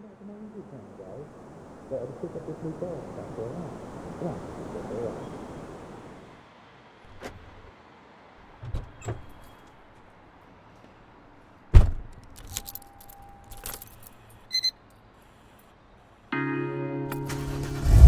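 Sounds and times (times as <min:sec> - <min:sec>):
car door shutting: 0:11.7 - 0:12.1
car keys jangling: 0:12.1 - 0:14.4.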